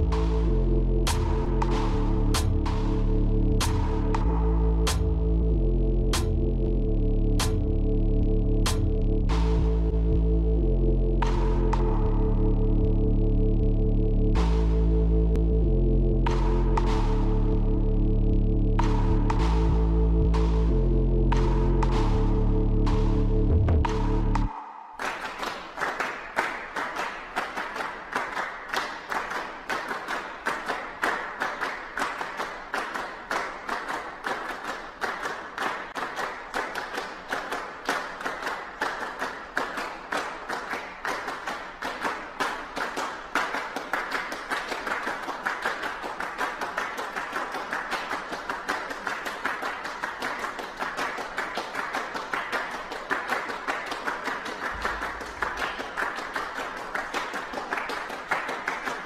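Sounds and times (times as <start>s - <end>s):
audience applauding: 24.4s - 59.0s.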